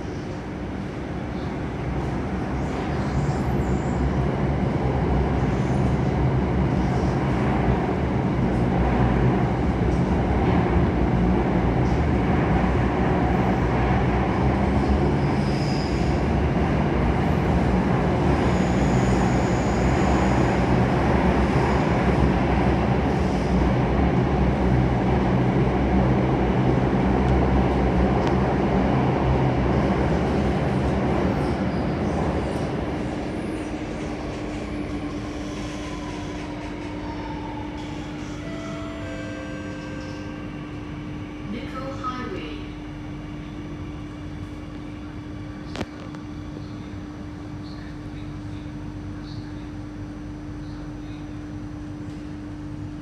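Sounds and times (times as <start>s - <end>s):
train wheels rumbling on rail: 0.0s - 53.0s
high-pitched wheel squeal: 15.2s - 16.2s
train motor hum: 20.6s - 37.0s.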